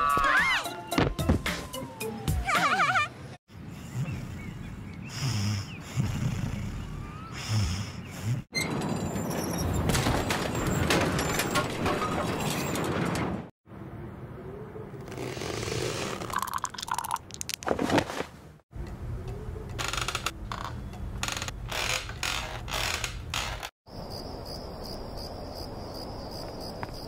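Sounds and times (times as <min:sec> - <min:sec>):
crickets chirping: 0:23.9 - 0:27.0.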